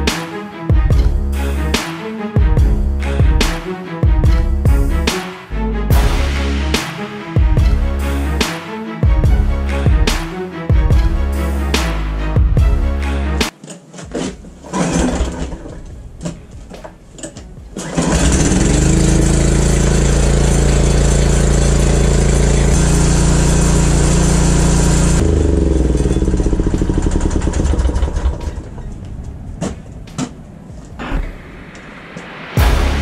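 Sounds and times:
knocks and rattles: 13.4 - 22.4, 25.2 - 31.4
small engine running: 17.8 - 28.6.

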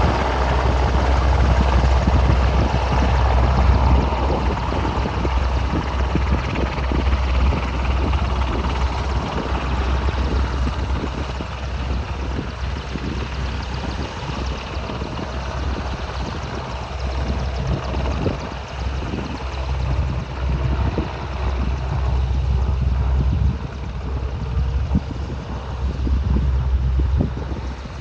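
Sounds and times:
helicopter rotor and turbine: 0.0 - 28.0.

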